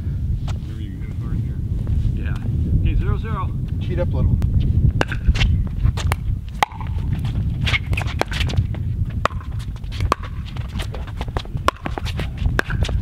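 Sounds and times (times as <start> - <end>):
steady low rumble: 0.0 - 13.0
paddles hitting plastic ball: 6.0 - 7.0, 7.8 - 13.0.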